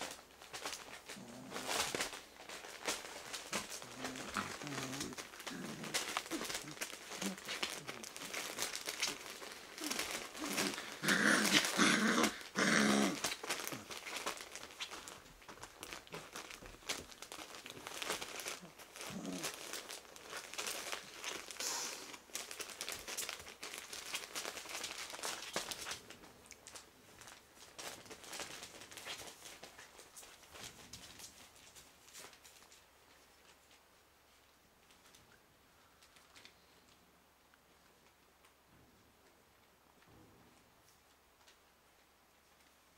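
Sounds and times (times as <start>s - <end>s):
paws scratching: 0.0s - 21.6s, 22.4s - 33.8s
newspaper rustling and crinkling: 0.0s - 35.3s
puppy growls and yaps: 9.8s - 13.4s.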